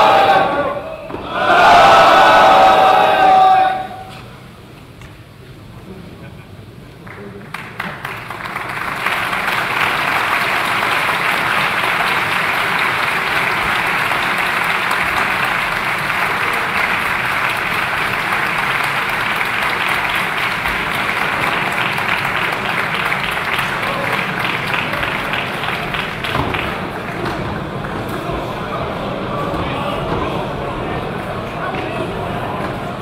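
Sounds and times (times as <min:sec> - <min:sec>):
crowd applauding: 0:07.0 - 0:33.0.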